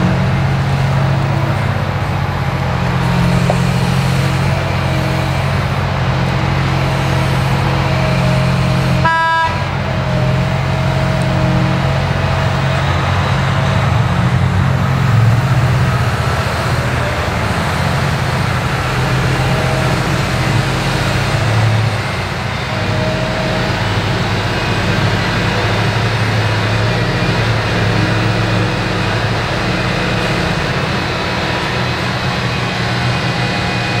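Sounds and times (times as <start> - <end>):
diesel engine drone: 0.0 - 34.0
wavering hydraulic whine: 0.0 - 34.0
short horn toot: 9.0 - 9.7.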